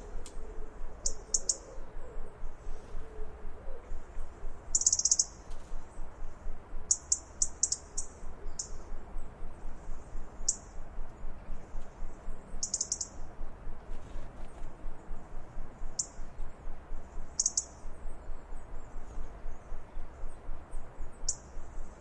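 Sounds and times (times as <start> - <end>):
robin alarm call ticks: 0.2 - 1.9, 4.7 - 5.4, 6.2 - 13.4, 15.0 - 22.0.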